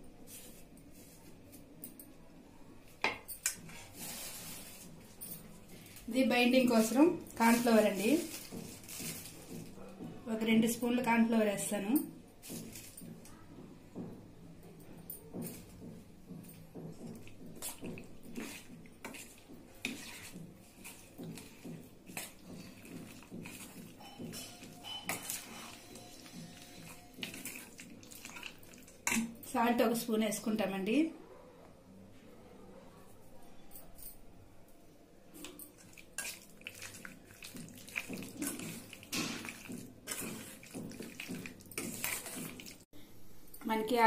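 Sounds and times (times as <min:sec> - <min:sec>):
wet sloppy mixing: 0:03.6 - 0:10.4, 0:16.7 - 0:30.0, 0:35.4 - 0:42.9
spoon scraping steel bowl: 0:17.6 - 0:29.4, 0:35.4 - 0:42.8
wet squelching of meat: 0:35.8 - 0:42.9.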